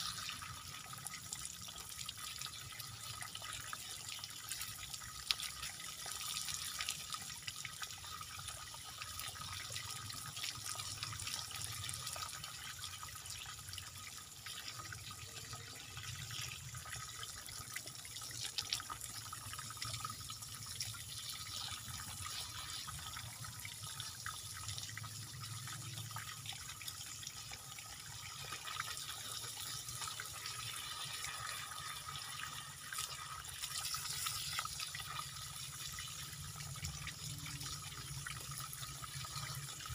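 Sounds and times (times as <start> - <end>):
hose water spraying and splashing: 21.1 - 23.5, 28.4 - 35.4.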